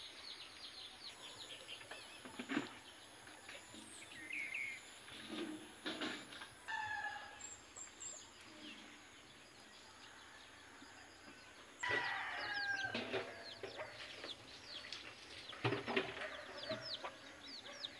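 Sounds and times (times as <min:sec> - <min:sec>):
chickens clucking: 0:11.1 - 0:17.9.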